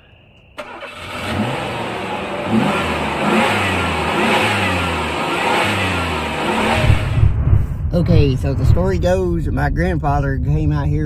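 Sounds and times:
car engine revving: 0.6 - 7.3.

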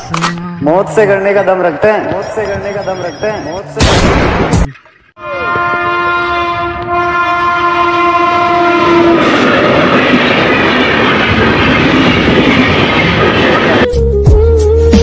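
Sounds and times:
train horn blast: 5.2 - 9.5.

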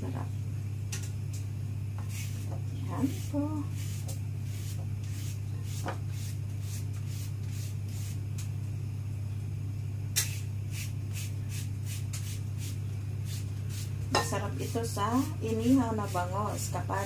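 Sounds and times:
steady low hum: 0.0 - 17.0
vegetable peeler scraping cucumber: 3.0 - 8.2, 14.6 - 16.6.

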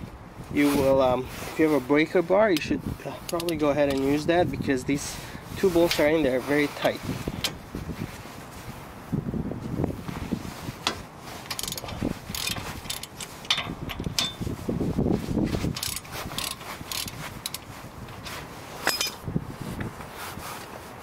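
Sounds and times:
socket ratchet clicking: 3.3 - 4.0, 11.5 - 14.4, 15.7 - 17.7
tools knocking against metal: 11.5 - 14.4.

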